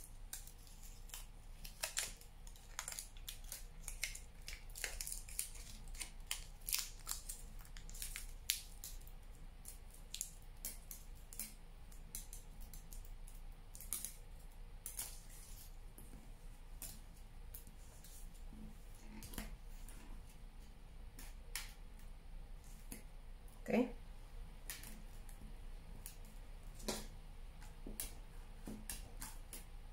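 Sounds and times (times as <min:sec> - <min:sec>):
aluminium foil crinkling: 0:00.0 - 0:15.8.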